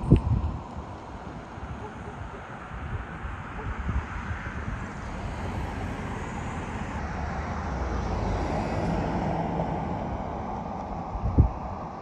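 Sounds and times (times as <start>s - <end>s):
car driving past: 4.1s - 12.0s.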